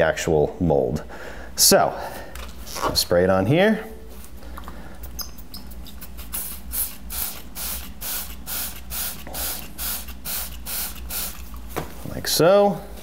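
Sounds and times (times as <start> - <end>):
spray bottle squirting: 5.2 - 11.6.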